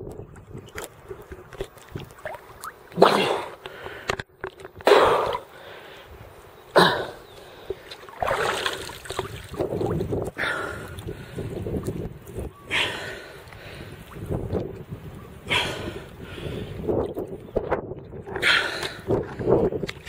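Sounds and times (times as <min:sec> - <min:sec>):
water splashing and sloshing: 0:00.0 - 0:06.0, 0:07.3 - 0:14.9, 0:18.0 - 0:20.0.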